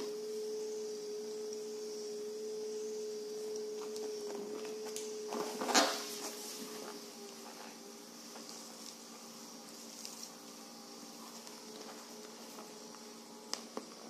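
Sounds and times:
massager motor humming: 0:00.0 - 0:14.0.

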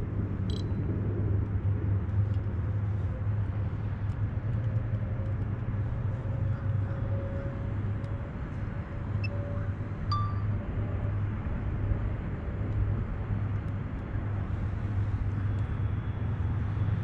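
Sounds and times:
road traffic rumble: 0:00.0 - 0:17.0
faint hum rising in pitch: 0:05.8 - 0:11.1.

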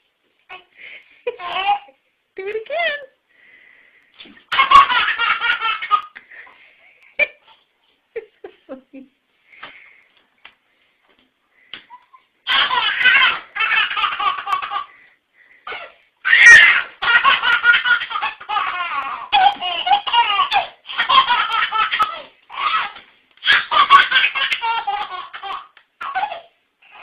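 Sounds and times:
baby laughing: 0:01.3 - 0:02.0, 0:04.5 - 0:06.2, 0:11.9 - 0:15.1, 0:15.7 - 0:27.0.

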